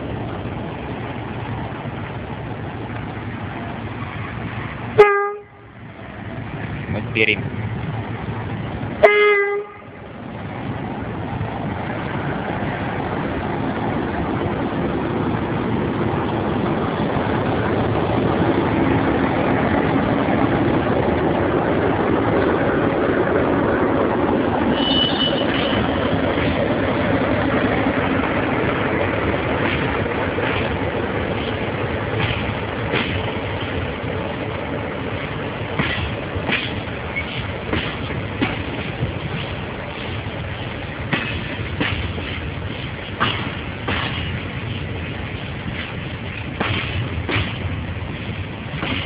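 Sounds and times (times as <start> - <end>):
locomotive engine hum: 0.0 - 49.0
high squeal: 24.7 - 26.0.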